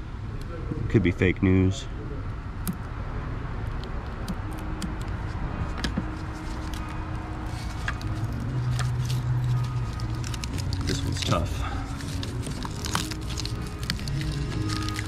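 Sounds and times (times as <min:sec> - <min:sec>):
low hum: 0:01.9 - 0:15.0
plastic wires clicking and crackling: 0:06.6 - 0:15.0.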